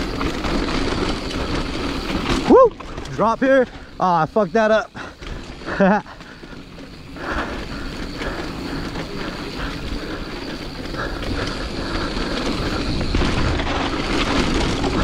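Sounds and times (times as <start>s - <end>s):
mountain bike rolling on dirt trail: 0.0s - 15.0s
wind rumbling on microphone: 6.4s - 15.0s
bike knocks and rattles: 11.4s - 15.0s.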